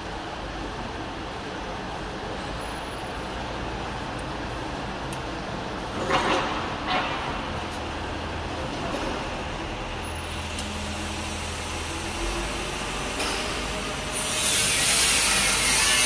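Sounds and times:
hiss: 14.1s - 16.0s.

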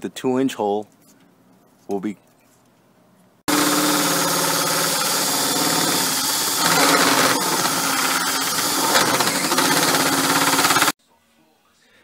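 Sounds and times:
drill with hole saw cutting wall: 3.5s - 11.0s.

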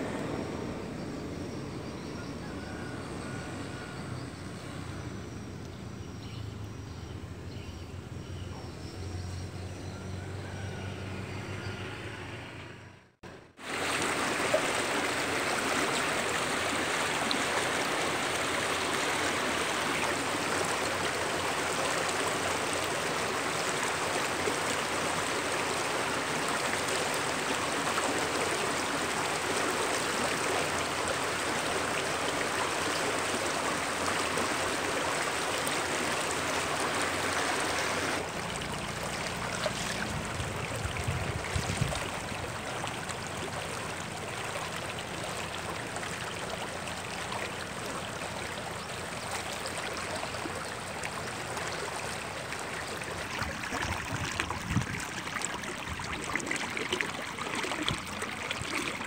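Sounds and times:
stream rushing over rocks: 13.6s - 59.0s.

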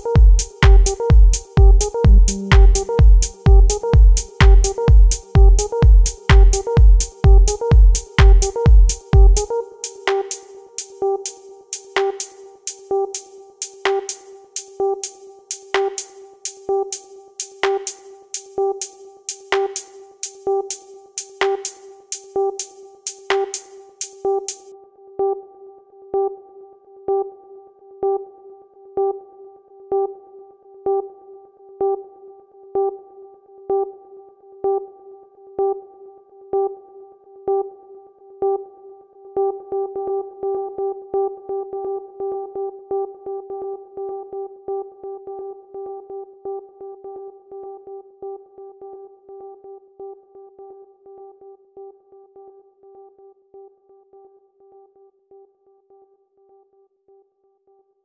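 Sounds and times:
pulsing electronic music note: 2.0s - 3.0s.

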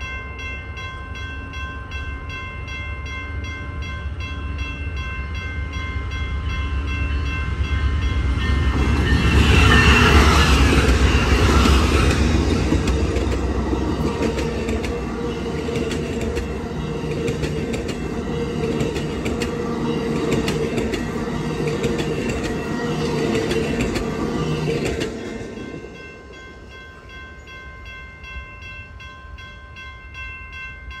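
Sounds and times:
train rumbling past: 0.0s - 31.0s
wheels clicking over rail joints: 10.5s - 25.6s.

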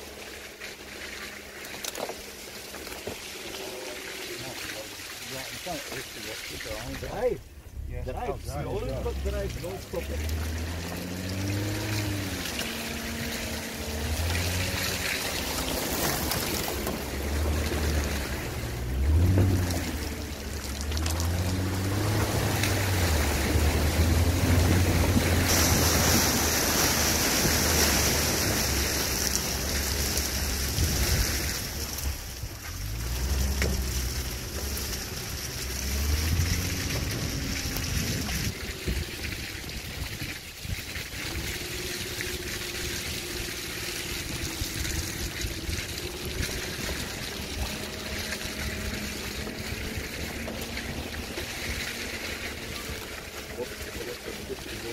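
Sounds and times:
tyres sloshing through mud: 0.0s - 54.9s
car engine revving: 5.3s - 40.0s, 41.0s - 54.9s.

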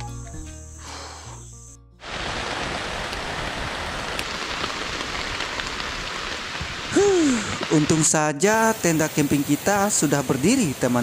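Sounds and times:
background music: 0.0s - 2.0s
drizzle hissing: 0.0s - 11.0s
wind in forest: 2.0s - 11.0s.

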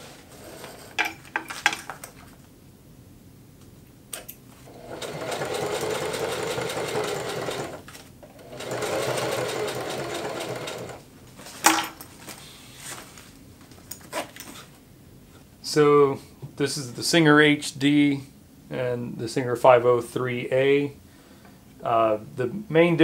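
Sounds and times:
sewing machine stitching: 0.0s - 1.2s, 4.7s - 11.0s.

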